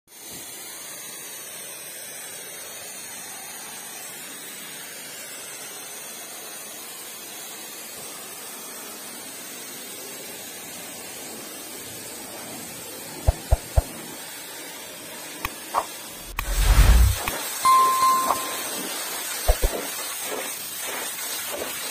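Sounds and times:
high-pressure water jet hissing: 0:00.2 - 0:17.4, 0:18.7 - 0:21.9.

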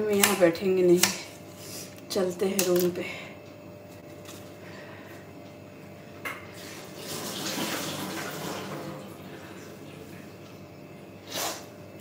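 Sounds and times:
tap water rushing: 0:06.2 - 0:09.4.

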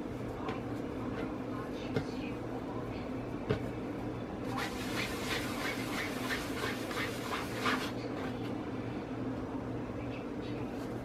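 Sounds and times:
steady low hum: 0:00.0 - 0:11.0
hand rubbing dough on counter: 0:04.5 - 0:08.4.

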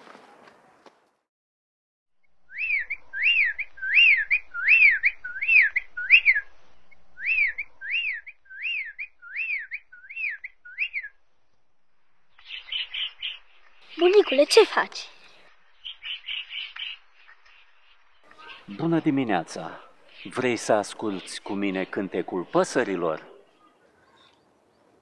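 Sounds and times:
whistled notes rising and falling: 0:02.4 - 0:06.6, 0:07.2 - 0:11.2.

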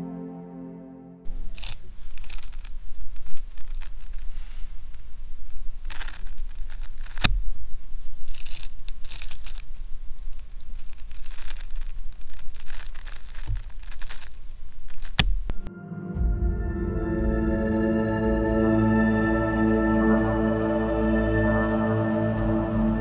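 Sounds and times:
feathers rasping apart: 0:01.3 - 0:15.5.

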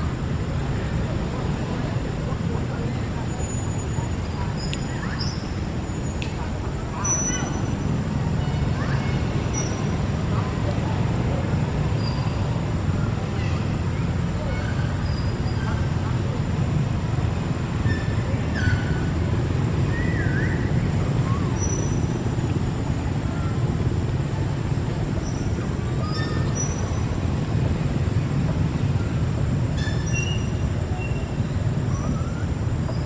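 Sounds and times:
low rumbling background noise: 0:00.0 - 0:33.0
whistled glides: 0:19.8 - 0:22.1, 0:29.8 - 0:33.0.

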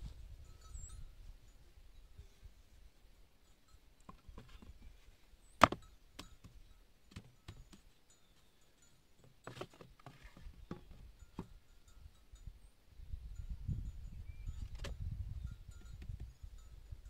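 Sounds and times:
bamboo poles clacking: 0:05.6 - 0:06.4.

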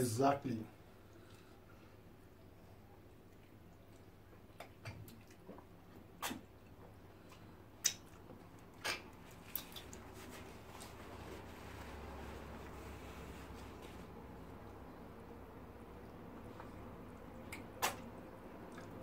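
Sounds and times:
chewing and mouth clicks: 0:03.2 - 0:10.4, 0:17.4 - 0:19.0
lip smacks: 0:03.3 - 0:10.1, 0:17.4 - 0:19.0.

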